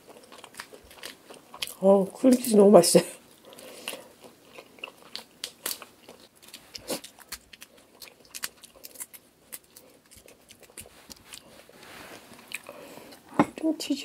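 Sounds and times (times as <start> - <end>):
shrimp shell peeling crackling: 4.9 - 11.5.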